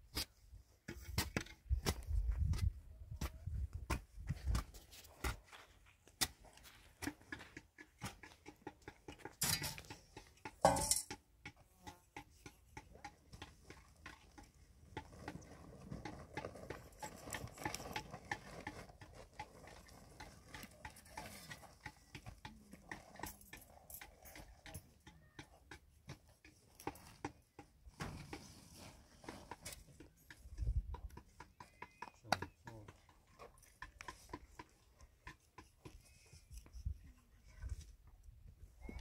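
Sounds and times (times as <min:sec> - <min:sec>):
sand and cement scraping by hand: 0:26.0 - 0:31.6.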